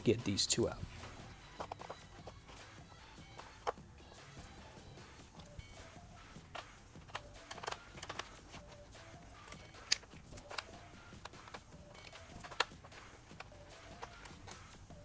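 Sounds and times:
faint background music: 0.0s - 15.0s
sharp metallic clicks and taps: 6.4s - 15.0s.

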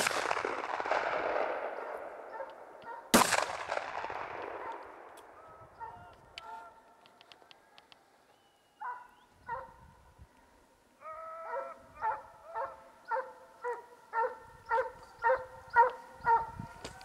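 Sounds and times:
dog baying barks: 1.7s - 3.1s, 4.6s - 4.9s, 5.7s - 6.8s, 8.8s - 9.8s, 11.0s - 16.6s
dog yelping: 1.8s - 3.1s, 5.6s - 6.1s, 11.0s - 16.5s
dog howling: 11.0s - 16.5s.

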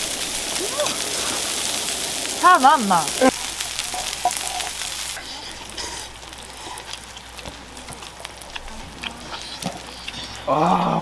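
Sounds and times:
pot boiling and hissing: 0.0s - 11.0s.

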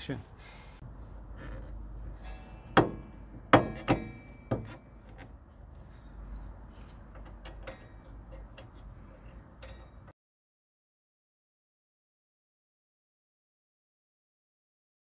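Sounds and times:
metal tools clinking and knocking: 2.1s - 5.4s, 7.0s - 10.1s.

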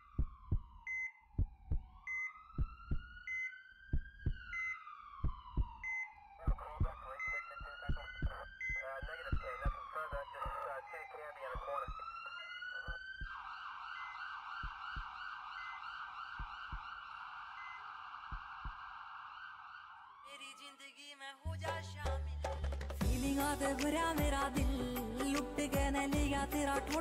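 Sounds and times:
siren wailing: 0.0s - 21.2s
kick drum beat: 0.1s - 0.8s, 1.4s - 2.0s, 2.6s - 3.1s, 3.9s - 4.5s, 5.2s - 5.8s, 6.4s - 7.0s, 14.6s - 15.1s, 16.4s - 16.8s, 23.0s - 23.4s, 24.2s - 24.9s, 25.8s - 26.5s.

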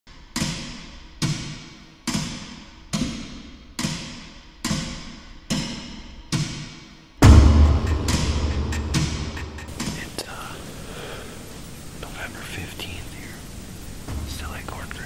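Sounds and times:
slow percussion beat: 7.2s - 10.7s, 13.8s - 15.0s.

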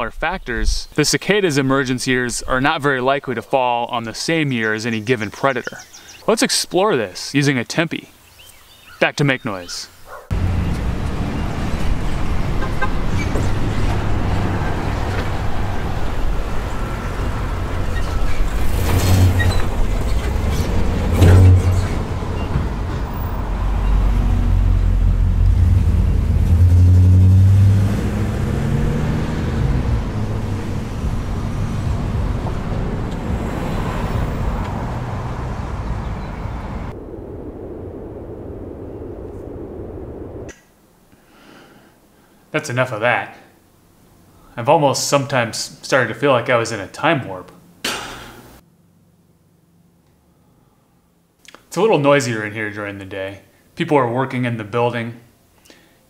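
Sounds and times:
vehicles passing with low rumble: 10.1s - 40.5s
delivery truck engine pulling away: 10.3s - 38.2s
low hum: 10.3s - 41.2s.

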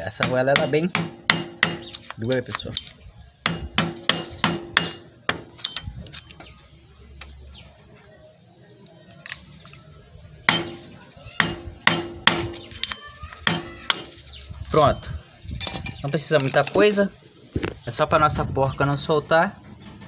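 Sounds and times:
hammer striking metal with ring: 3.5s - 5.9s.

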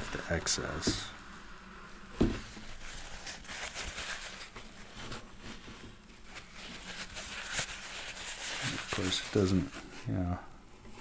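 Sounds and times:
paper towel wiping guitar: 2.4s - 10.0s.

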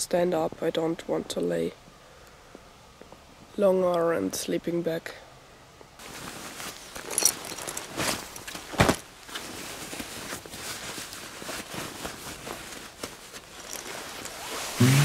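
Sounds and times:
clothing rustling and scraping: 6.0s - 14.8s.

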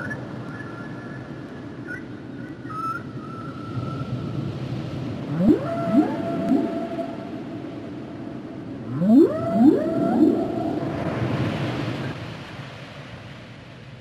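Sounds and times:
whale song: 1.8s - 4.4s, 5.2s - 12.2s
steady low rumble: 4.9s - 12.5s.

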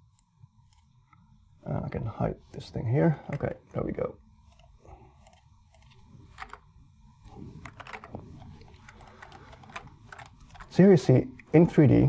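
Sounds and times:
low room hum: 0.0s - 12.0s
mouse and keyboard clicks: 4.5s - 6.6s, 7.6s - 10.7s.

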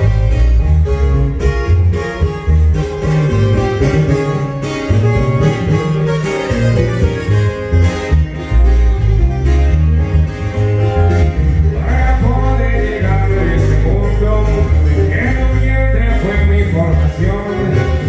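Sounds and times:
acoustic guitars: 0.0s - 18.0s
electric bass guitar: 0.0s - 18.0s.

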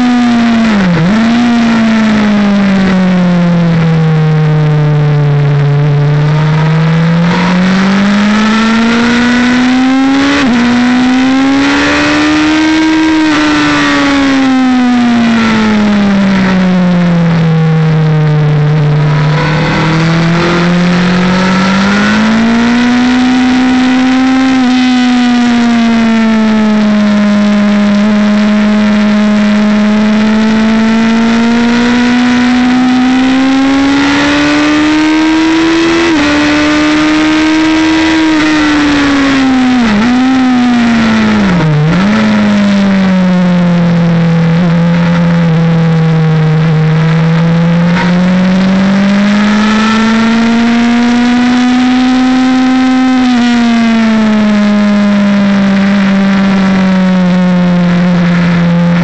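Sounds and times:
motorcycle engine: 0.0s - 59.0s.

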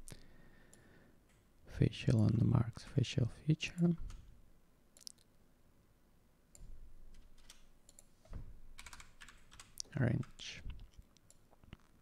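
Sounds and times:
keyboard typing: 6.6s - 8.1s, 8.8s - 11.4s.

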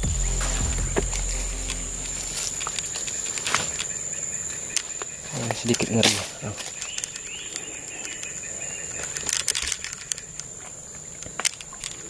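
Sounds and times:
high-pitched insect drone: 0.0s - 5.4s
rustles and clicks: 9.0s - 12.0s.

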